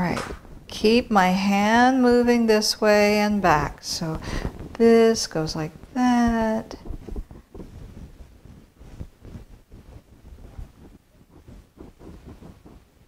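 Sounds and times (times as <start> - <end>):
paintbrush scrubbing on canvas: 6.2 - 13.0.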